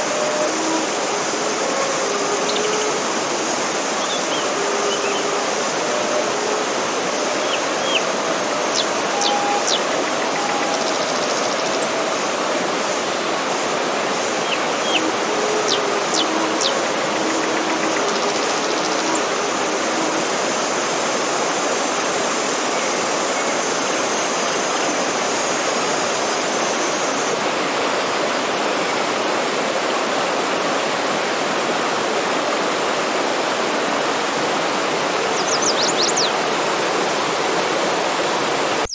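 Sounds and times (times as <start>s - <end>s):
stream rushing over rocks: 0.0s - 38.9s
birds chirping: 7.5s - 12.0s, 14.5s - 19.2s.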